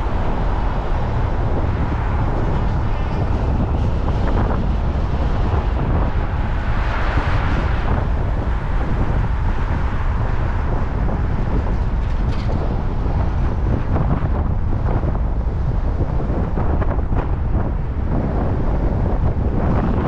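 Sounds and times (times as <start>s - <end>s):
car road and wind noise: 0.0s - 20.0s
wind rumbling on microphone: 0.0s - 20.0s.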